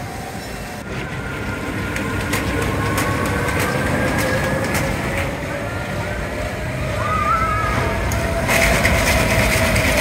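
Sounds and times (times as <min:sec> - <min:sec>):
roller coaster wheels rumbling: 0:00.0 - 0:10.0.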